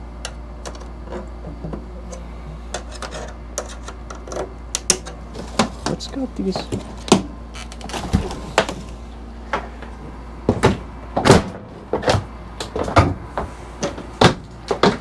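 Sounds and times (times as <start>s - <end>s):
knocks and clunks of parts: 10.5s - 15.0s.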